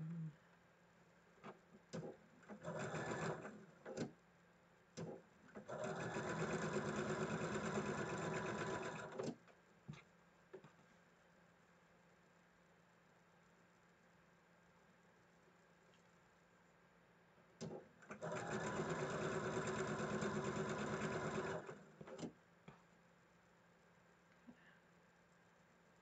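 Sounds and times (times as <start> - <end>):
sewing machine stitching: 2.0 - 4.1, 5.0 - 9.4, 17.6 - 22.3.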